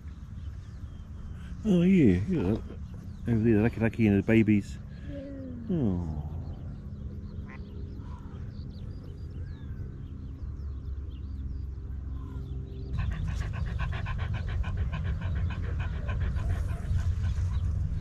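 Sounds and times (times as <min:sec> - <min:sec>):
low steady hum: 0:00.0 - 0:18.0
dog panting rapidly: 0:12.9 - 0:18.0.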